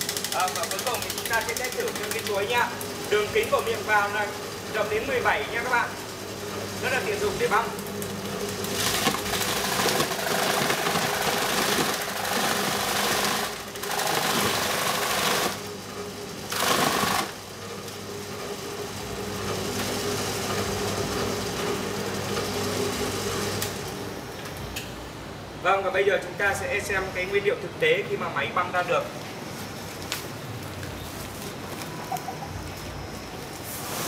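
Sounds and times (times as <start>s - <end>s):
machine motor hum: 0.0s - 24.7s.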